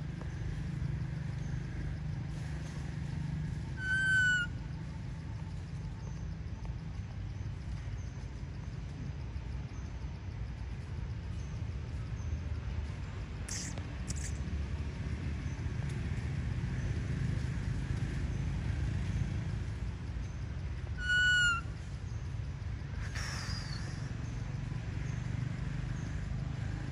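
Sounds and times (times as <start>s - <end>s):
whistle-like animal call: 3.8s - 4.5s, 21.0s - 21.6s
high chirps: 13.5s - 14.4s.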